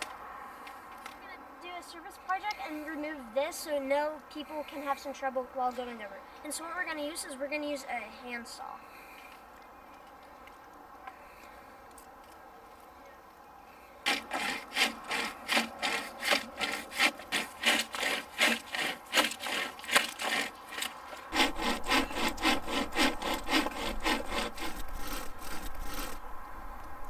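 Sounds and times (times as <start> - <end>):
chain saw rasping through wood: 14.0 - 26.3.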